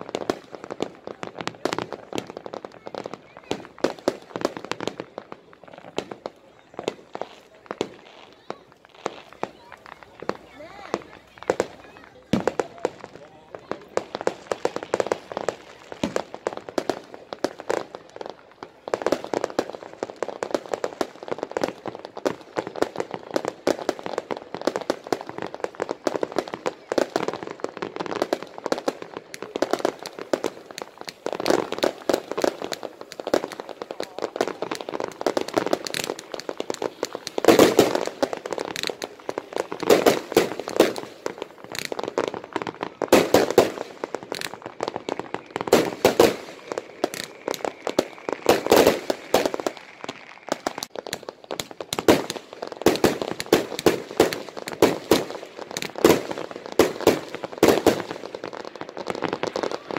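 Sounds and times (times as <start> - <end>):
fireworks crackling and popping: 0.0 - 59.9
loud firework reports: 28.3 - 59.9.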